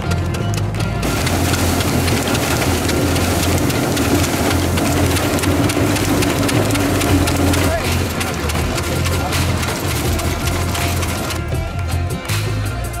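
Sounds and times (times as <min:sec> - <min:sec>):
machine low hum: 0:00.8 - 0:11.7
machine rushing noise: 0:01.0 - 0:11.6.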